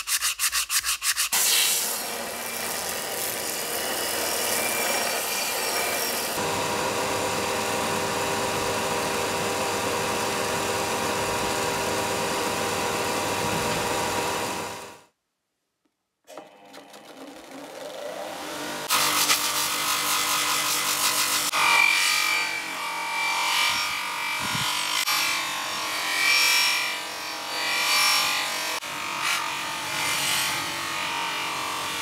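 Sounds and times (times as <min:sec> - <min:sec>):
belt grinder grinding steel: 0:01.4 - 0:14.9, 0:16.3 - 0:32.0
buffing wheel motor spinning: 0:06.3 - 0:15.0, 0:16.3 - 0:19.7.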